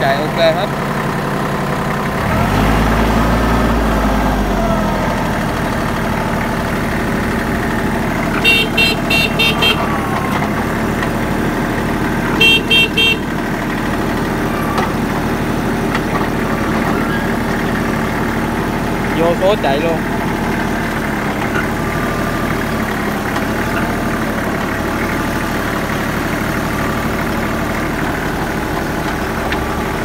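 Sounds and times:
diesel tractor engine idling: 0:00.0 - 0:30.0
short horn beeps: 0:08.3 - 0:10.1, 0:12.3 - 0:13.4.

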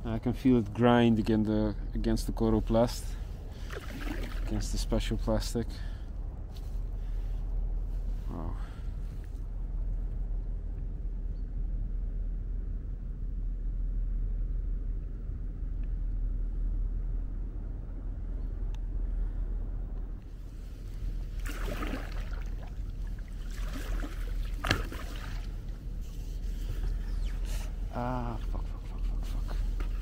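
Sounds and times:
wind rumble on microphone: 0:00.0 - 0:30.0
paddle splashing and scraping: 0:03.5 - 0:04.6, 0:20.6 - 0:27.7.

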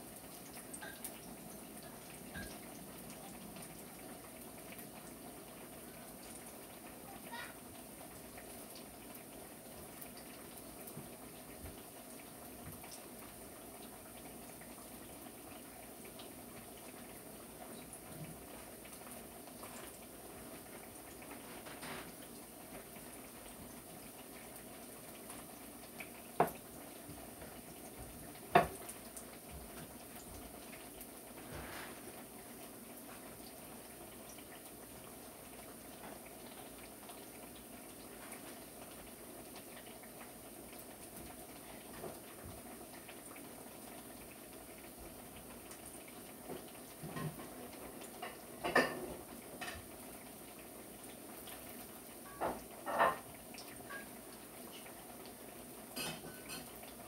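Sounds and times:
dishes clinking: 0:00.8 - 0:01.1, 0:48.2 - 0:49.8, 0:52.3 - 0:53.2, 0:56.0 - 0:56.7.

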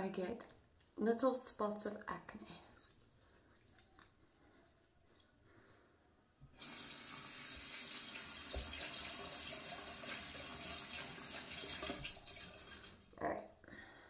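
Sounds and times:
sink tap turned on: 0:06.6 - 0:12.4
water running into basin: 0:06.6 - 0:13.2.

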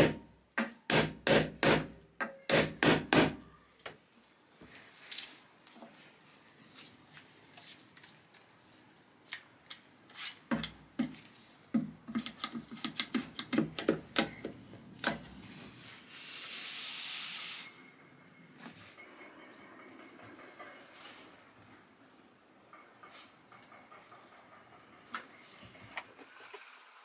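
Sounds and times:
hiss: 0:15.9 - 0:17.8.

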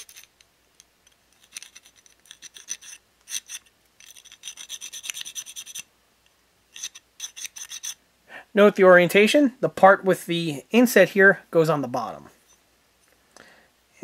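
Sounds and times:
needle file rasping on metal: 0:01.6 - 0:05.9, 0:06.7 - 0:08.0.

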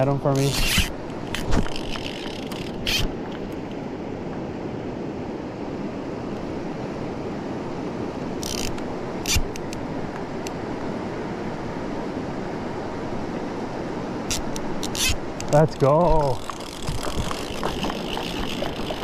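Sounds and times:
river running over stones: 0:00.0 - 0:19.0.

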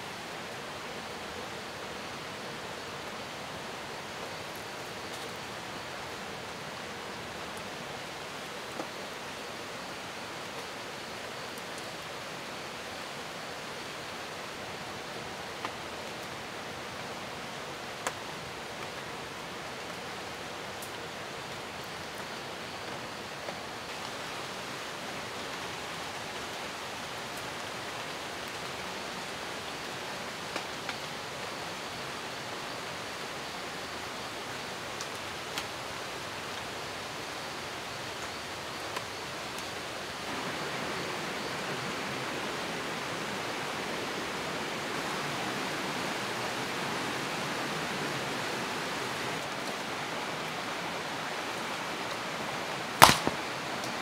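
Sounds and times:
forest stream rushing: 0:00.0 - 0:54.0
sharp double knock: 0:53.0 - 0:53.4.

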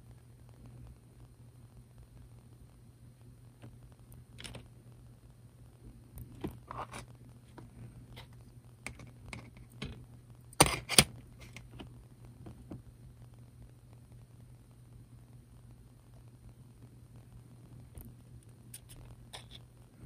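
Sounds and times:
faint low hum: 0:00.0 - 0:20.0
fingers and tools scratching: 0:06.6 - 0:07.1, 0:18.7 - 0:19.6.

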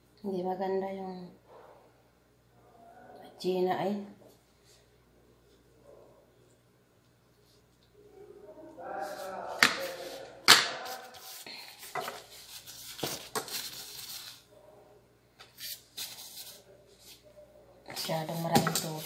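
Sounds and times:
plastic gloves crinkling: 0:10.8 - 0:14.5, 0:15.4 - 0:17.2.

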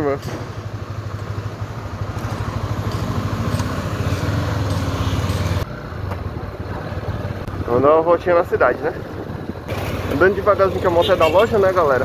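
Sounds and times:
motorcycle engine accelerating: 0:00.4 - 0:07.9.

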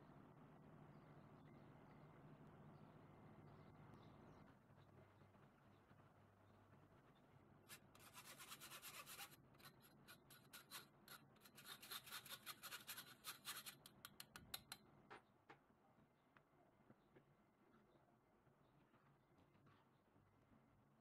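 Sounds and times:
spoon scraping metal sieve: 0:07.7 - 0:13.9.

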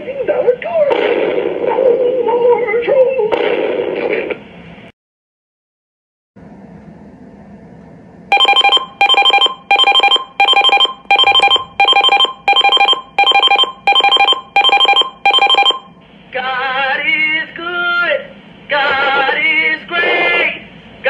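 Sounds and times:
pulsing electronic alert beeps: 0:08.3 - 0:15.9.

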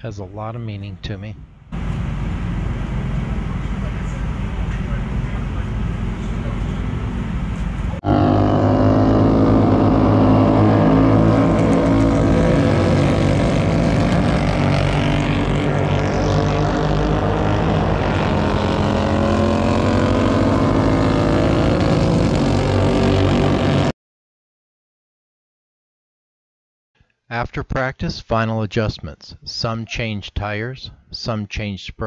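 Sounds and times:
racing motorcycle engines: 0:01.7 - 0:23.9.

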